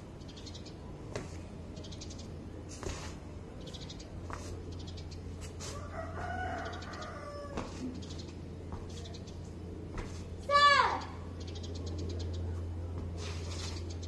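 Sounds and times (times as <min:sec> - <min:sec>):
rooster crowing: 0:05.7 - 0:07.8.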